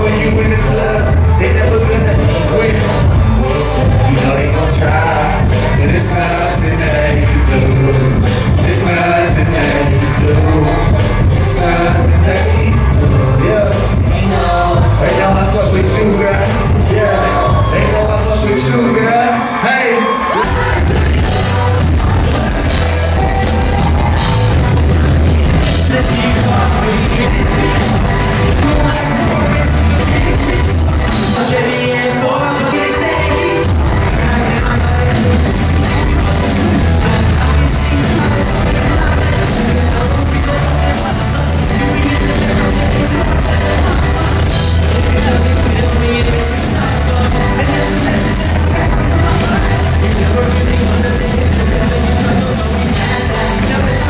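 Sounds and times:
bass guitar: 0.0s - 19.1s, 20.4s - 54.0s
electric guitar: 0.0s - 54.0s
person singing into a microphone: 0.0s - 54.0s
heavy pulsing beat: 20.4s - 31.4s.

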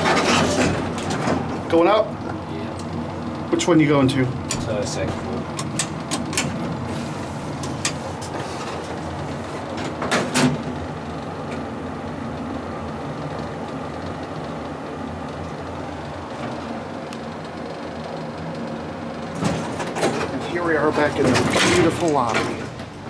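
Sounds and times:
elevator car humming: 0.0s - 23.0s
elevator doors clunking shut: 4.3s - 11.7s, 18.9s - 23.0s.

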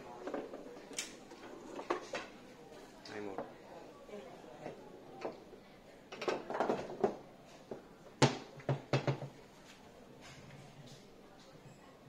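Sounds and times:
foosball ball and rods clacking: 6.1s - 7.2s, 8.2s - 9.4s.

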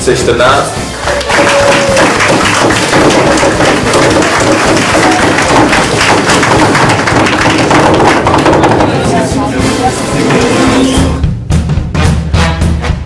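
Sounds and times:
crowd clapping: 1.0s - 9.6s.

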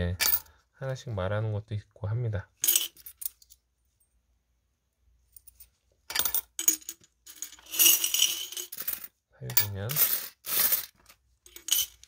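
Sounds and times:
coins clinking: 2.6s - 3.6s, 5.4s - 12.0s.

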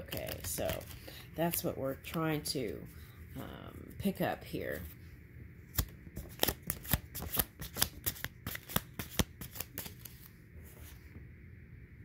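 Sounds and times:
cards being shuffled: 0.0s - 2.4s, 5.7s - 10.9s.

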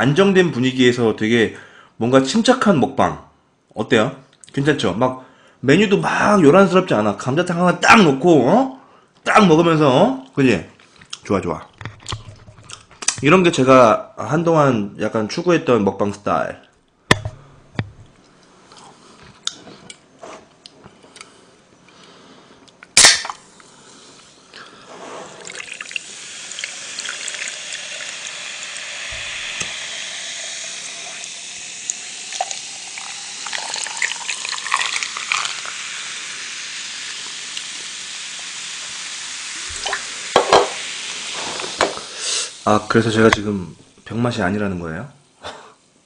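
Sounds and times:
can cracking open: 22.8s - 23.4s
fizzy drink pouring into cup: 25.2s - 42.9s.

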